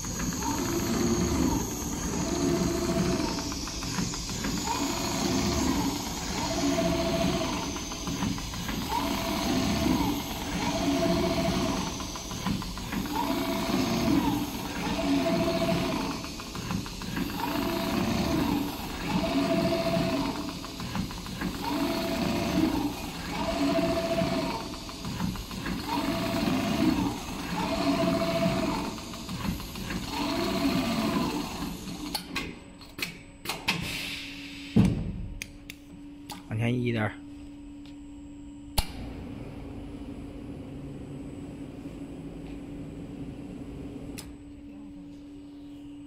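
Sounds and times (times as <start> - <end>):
sewing machine stitching: 0.0 - 32.1.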